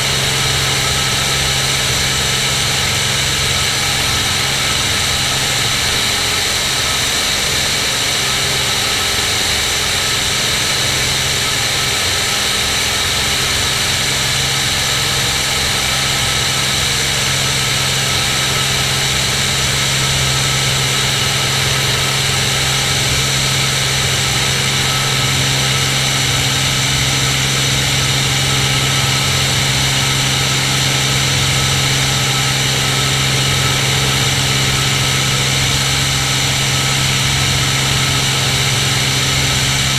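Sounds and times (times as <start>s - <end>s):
propeller aircraft engine droning: 0.0s - 39.9s.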